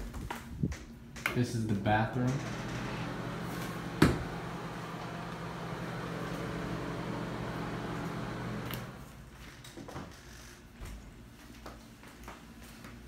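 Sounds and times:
exhaust fan humming: 0:00.0 - 0:09.5.

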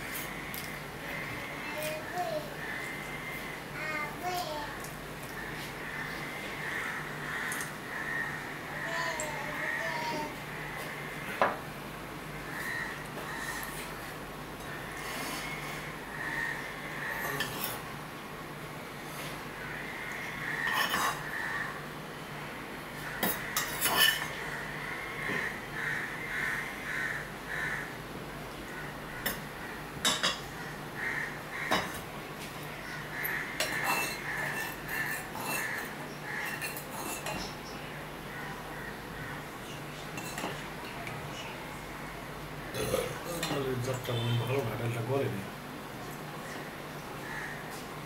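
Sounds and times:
metal spoon clinking on bowls: 0:33.6 - 0:37.6, 0:40.2 - 0:40.6.

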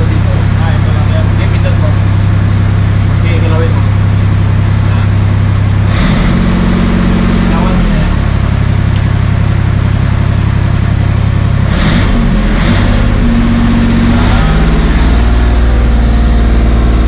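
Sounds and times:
diesel engine revving up and down: 0:00.0 - 0:17.0.

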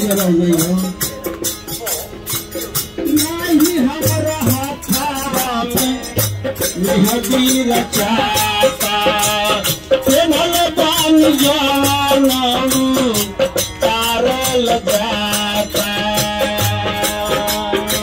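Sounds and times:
shaken rattle beat: 0:00.0 - 0:18.0
crowd singing: 0:02.5 - 0:18.0
person singing devotional melody: 0:02.5 - 0:18.0.

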